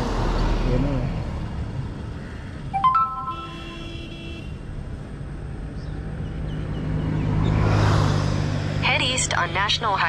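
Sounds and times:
traffic rumble: 0:00.0 - 0:10.0
vehicle horn: 0:03.1 - 0:04.6.

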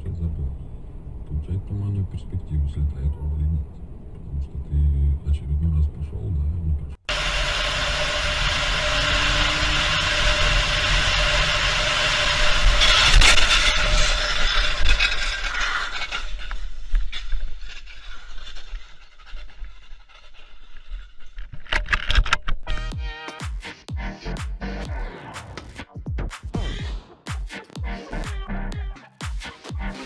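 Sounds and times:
vehicle road and wind noise: 0:00.0 - 0:05.4
loud crash with scraping: 0:07.1 - 0:22.4.

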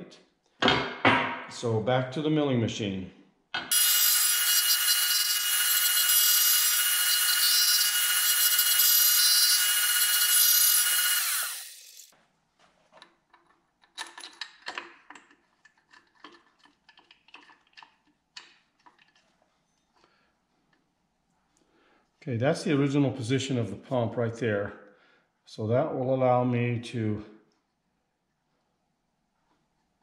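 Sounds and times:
milling machine cutting metal: 0:03.7 - 0:12.1
metal parts clicking and knocking: 0:13.0 - 0:19.2.

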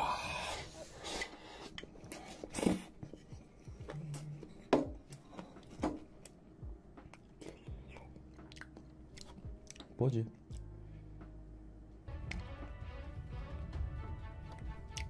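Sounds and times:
wet chewing sounds: 0:07.0 - 0:10.7, 0:14.5 - 0:15.0.

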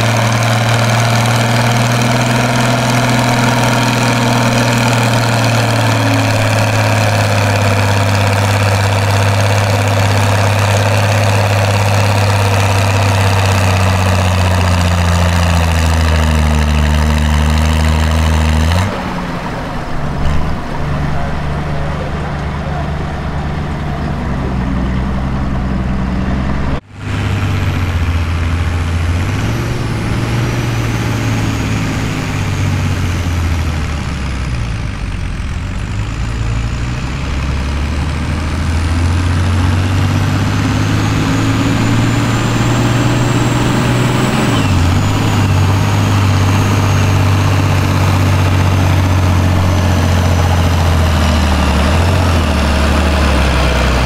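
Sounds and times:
tractor diesel engine under load: 0:00.0 - 0:54.0.

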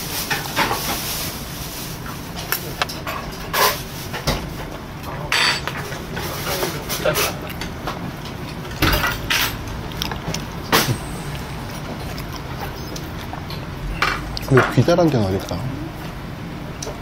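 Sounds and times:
room noise: 0:00.0 - 0:17.0
chewing: 0:05.8 - 0:16.2.

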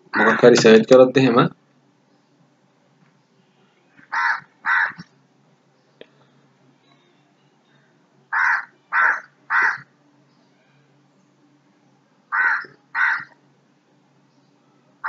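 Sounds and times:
bird calling: 0:00.0 - 0:00.6, 0:03.3 - 0:05.1, 0:06.1 - 0:10.9, 0:12.3 - 0:13.4.

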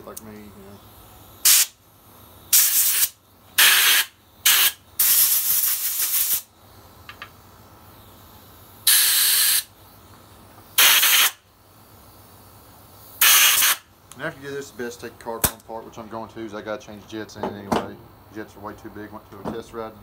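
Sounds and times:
compressed air blasts: 0:00.8 - 0:15.7.

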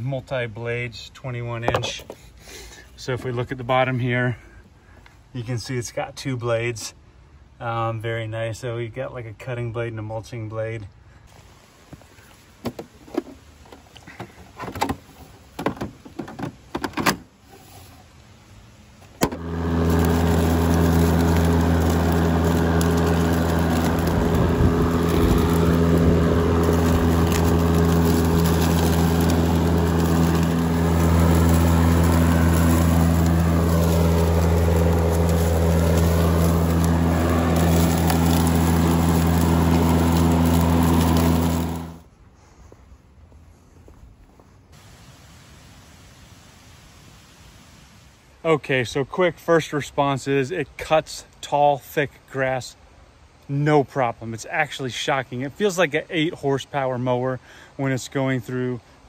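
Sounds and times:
electric lawn mower humming: 0:19.2 - 0:42.1.

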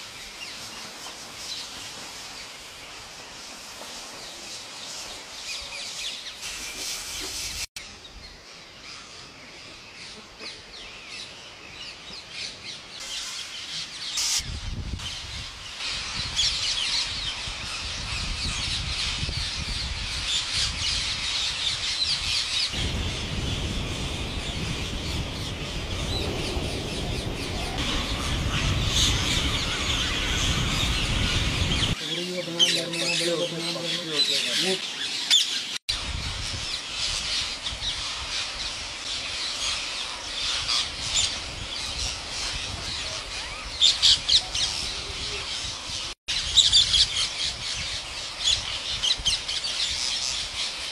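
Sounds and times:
parakeets chattering: 0:25.4 - 0:35.7.

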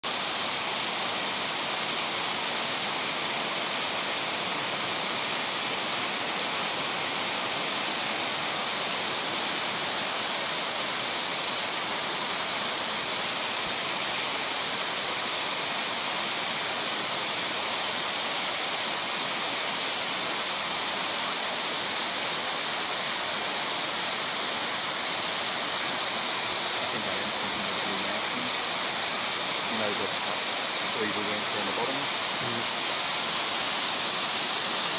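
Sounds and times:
waterfall rushing hiss: 0:00.0 - 0:34.9.

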